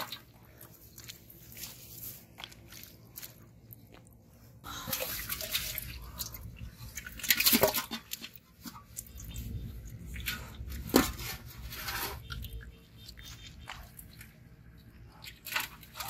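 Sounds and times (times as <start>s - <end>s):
water splashing in a metal pot: 0.0s - 0.4s, 4.8s - 14.4s
small clicks and drips: 12.2s - 16.0s.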